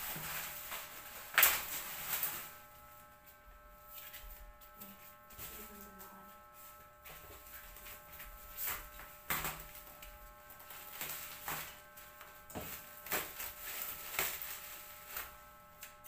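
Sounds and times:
plastic wrapping crinkling: 0.0 - 2.6, 7.1 - 16.0.

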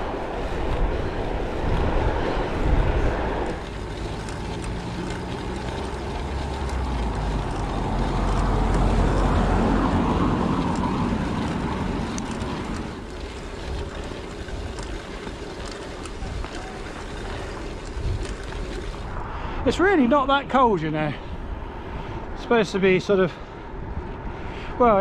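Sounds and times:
wind on camera microphone: 0.0 - 3.7
tyres rolling on tarmac: 0.0 - 21.3.

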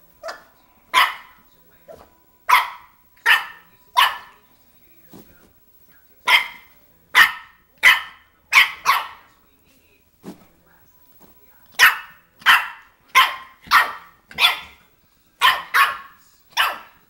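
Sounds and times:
puppy play barks: 0.2 - 4.4, 6.3 - 9.3, 11.7 - 14.8, 15.4 - 17.0.

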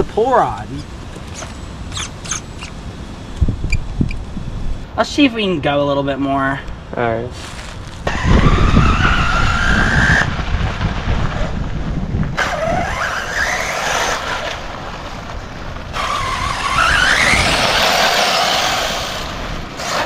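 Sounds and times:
rc car electric motor whine: 8.1 - 10.3, 12.4 - 14.7, 15.9 - 20.0.

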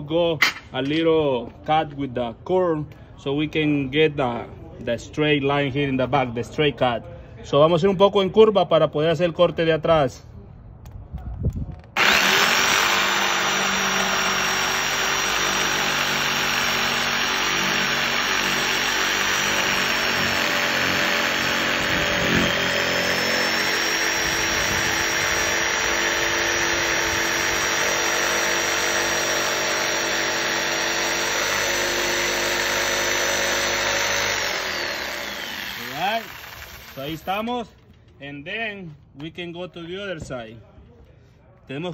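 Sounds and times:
jigsaw cutting wood: 12.0 - 37.3.

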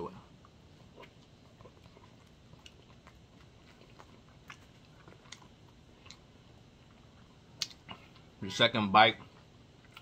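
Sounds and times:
faint chewing: 0.0 - 8.4, 9.1 - 10.0
soft mouth clicks: 7.6 - 8.3.

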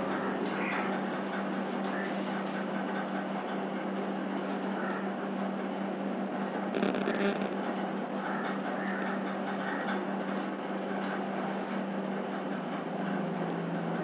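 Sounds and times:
low electrical hum: 4.0 - 14.0.

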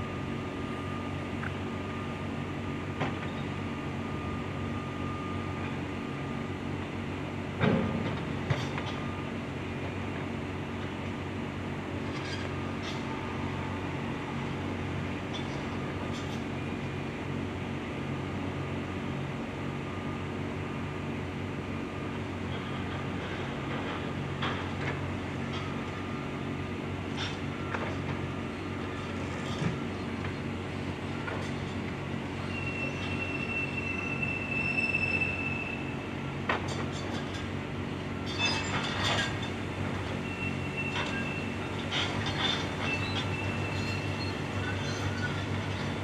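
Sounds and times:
high squeal: 32.4 - 36.0, 42.8 - 45.5.

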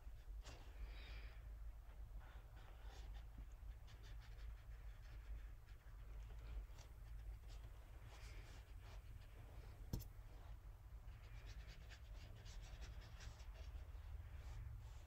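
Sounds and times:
brush strokes on paper: 6.4 - 15.0.

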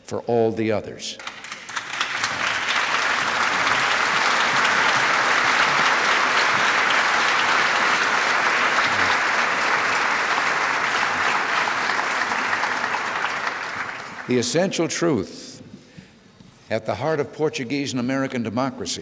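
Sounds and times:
large audience applauding: 1.2 - 14.5.

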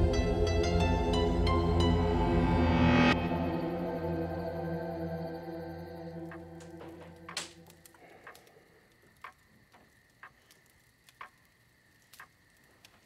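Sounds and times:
clock ticking slowly: 6.2 - 11.5.

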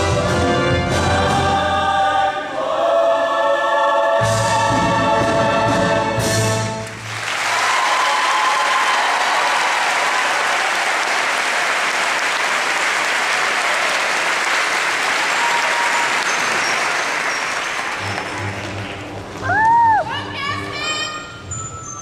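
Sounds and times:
audience applauding: 6.8 - 19.8.

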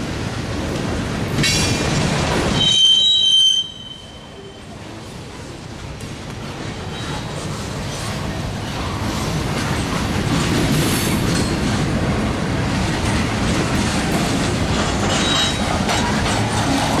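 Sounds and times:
freight cars rumbling on rails: 0.0 - 17.0
wheels clicking over rail joints: 8.6 - 17.0.

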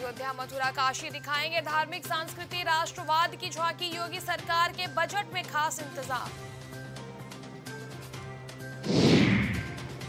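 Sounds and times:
background music bed: 6.0 - 10.0
crash-like hit with falling whoosh: 8.8 - 10.0.

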